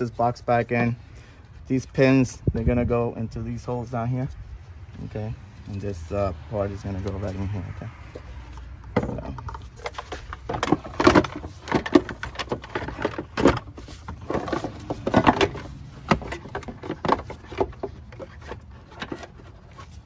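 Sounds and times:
plastic box knocking and scraping: 8.9 - 19.9.

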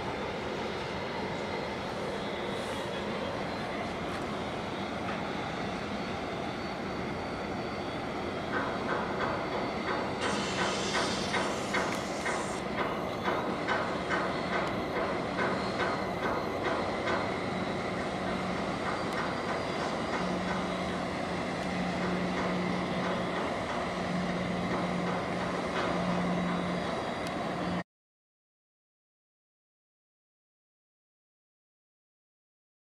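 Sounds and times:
machinery clattering: 8.5 - 21.1.

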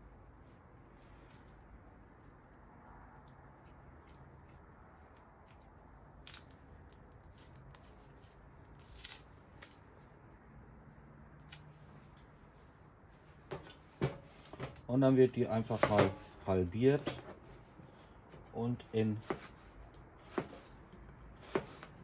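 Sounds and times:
onion skin papery crackles: 4.0 - 9.9.

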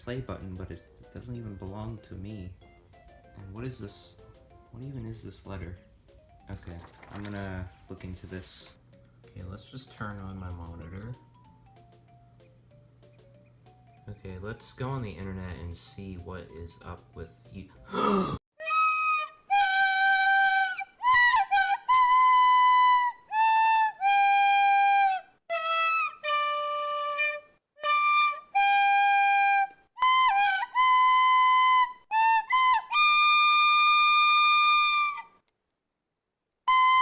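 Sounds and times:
solo flute melody: 18.6 - 35.4, 36.7 - 37.0.

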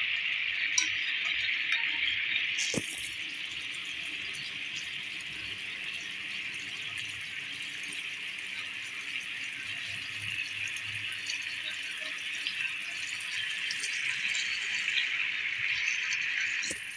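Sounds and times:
sweets sizzling in hot liquid: 0.0 - 16.9.

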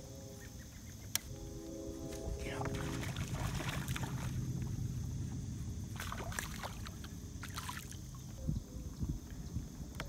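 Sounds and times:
steady low rumble: 0.0 - 10.0
fish splashing at water surface: 6.0 - 8.2.

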